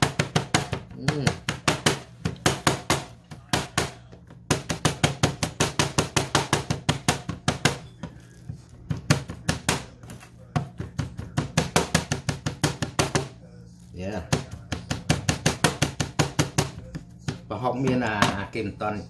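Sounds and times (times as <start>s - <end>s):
cleaver chopping on plastic board: 0.0s - 8.2s, 8.8s - 13.4s, 14.2s - 18.4s.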